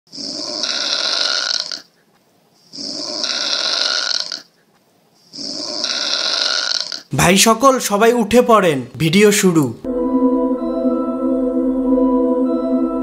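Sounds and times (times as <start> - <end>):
long rasping snores: 0.1 - 1.9, 2.7 - 4.5, 5.3 - 7.1.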